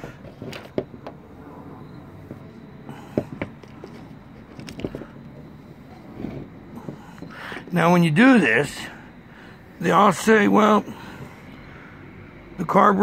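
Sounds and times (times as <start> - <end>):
faint clicks and knocks: 2.2 - 7.7.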